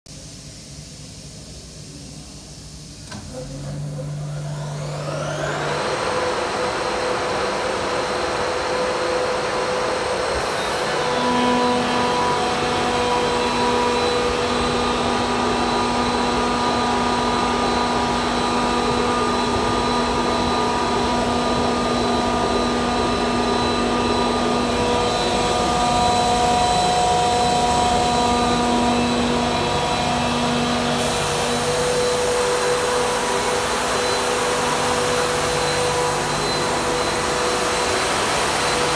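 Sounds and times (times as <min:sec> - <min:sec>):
air compressor whining and humming: 0:00.1 - 0:38.9.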